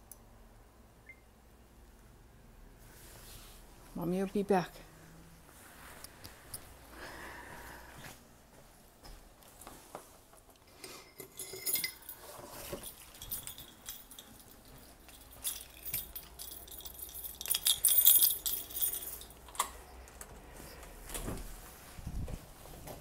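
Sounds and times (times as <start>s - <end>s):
small metallic jingling: 11.0s - 19.6s.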